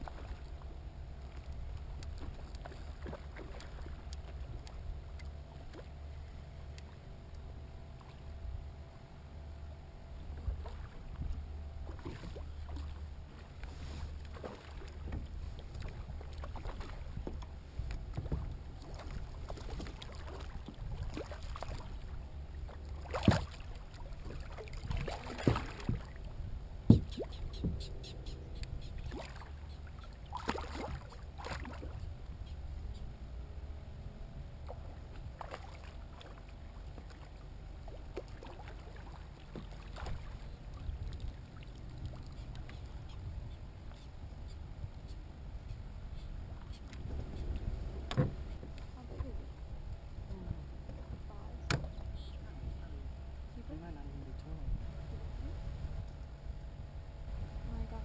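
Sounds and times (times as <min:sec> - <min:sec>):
water rumbling against hull: 0:00.0 - 0:58.0
sharp knocks: 0:26.9 - 0:27.8.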